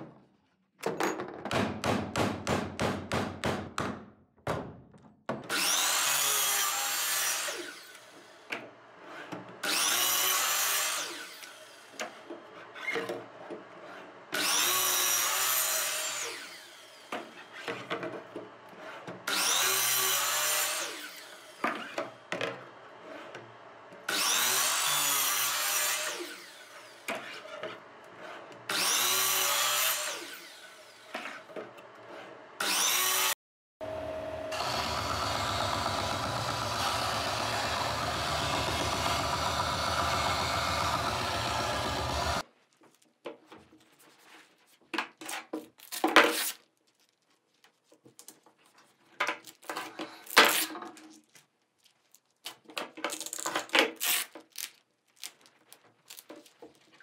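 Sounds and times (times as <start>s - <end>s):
miter saw cutting board: 5.5s - 13.0s, 13.8s - 17.9s, 18.6s - 42.4s.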